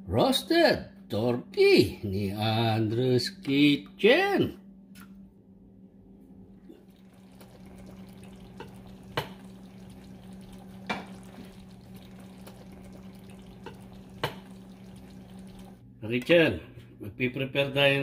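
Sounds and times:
steady low hum: 0.9 - 18.0
sauce simmering in a pan: 6.7 - 15.8.

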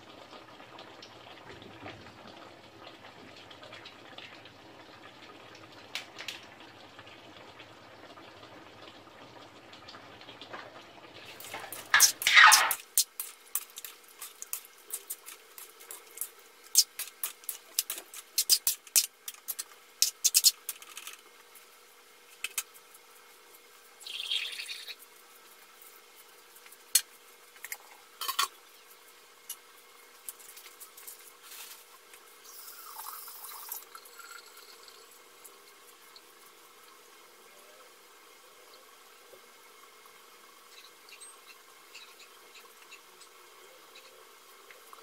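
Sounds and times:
metal spatula scraping a wok: 11.6 - 13.7.

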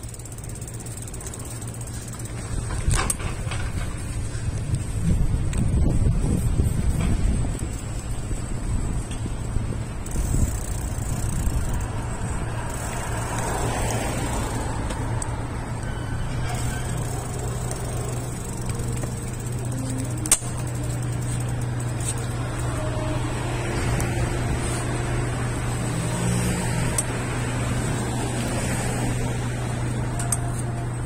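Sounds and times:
car traffic: 0.0 - 31.0
steady low hum: 0.0 - 31.0
sharp click: 20.2 - 20.7.

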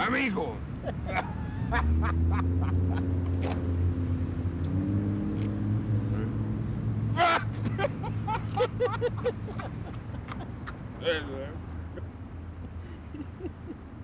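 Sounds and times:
car engine humming: 0.0 - 14.0
men laughing: 0.7 - 3.4, 7.2 - 14.0.

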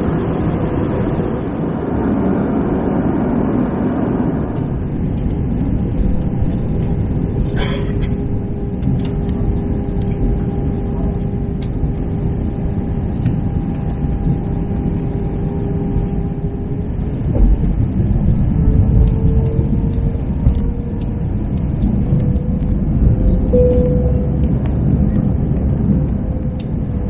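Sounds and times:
aircraft cabin rumble: 0.0 - 27.0
steady tone: 8.1 - 27.0.

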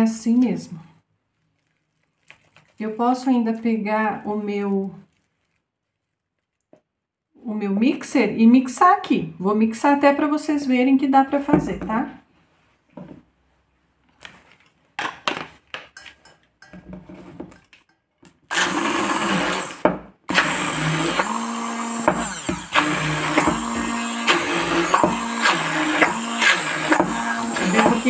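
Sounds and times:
immersion blender blending: 18.5 - 28.0.

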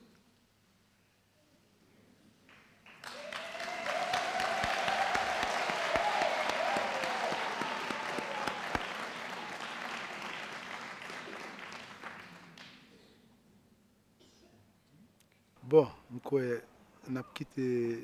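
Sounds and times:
audience applauding: 2.8 - 12.9.

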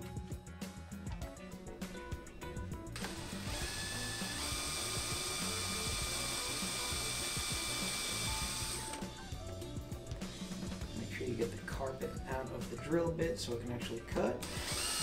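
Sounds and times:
background music: 0.0 - 15.0
cordless drill motor whine: 3.0 - 9.3, 14.4 - 15.0.

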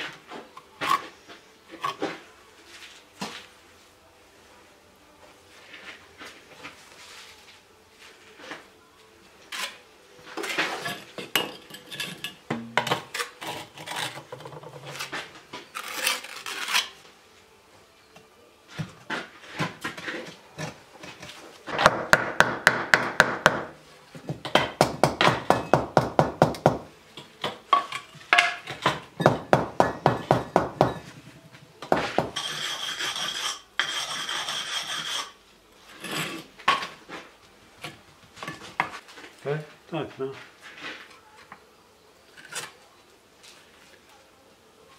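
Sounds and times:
trowel scraping brick: 12.9 - 17.0, 32.0 - 36.5
scraping rasp: 13.0 - 17.0, 32.0 - 36.5.

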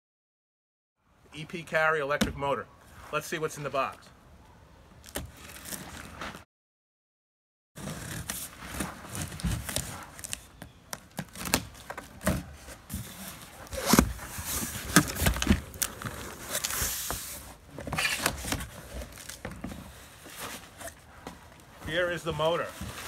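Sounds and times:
cardboard knocks and scrapes: 7.8 - 22.1, 22.7 - 23.0
packaging rustling: 8.1 - 20.8.

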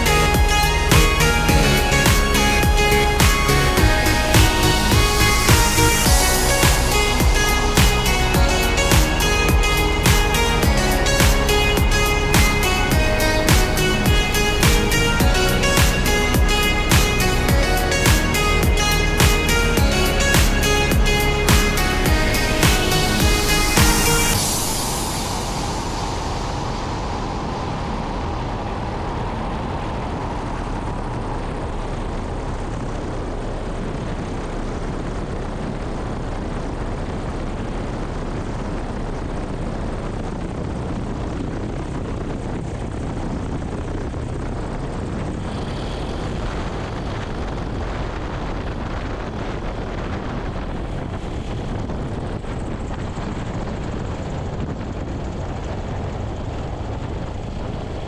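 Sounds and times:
aircraft engine running steadily: 24.0 - 58.0.

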